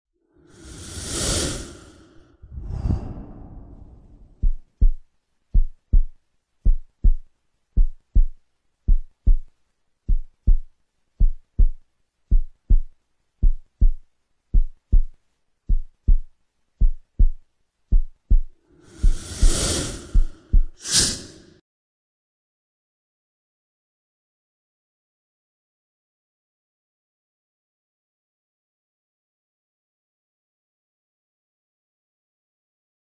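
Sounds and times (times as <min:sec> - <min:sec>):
rising whoosh: 0:00.6 - 0:04.6
heartbeat thumps: 0:03.7 - 0:09.5, 0:10.1 - 0:20.8.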